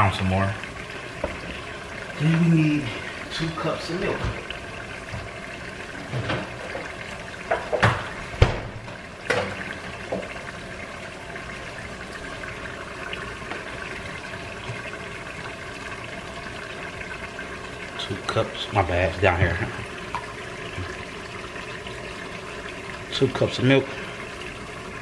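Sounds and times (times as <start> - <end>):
refrigerator door knocks: 7.8 - 9.4.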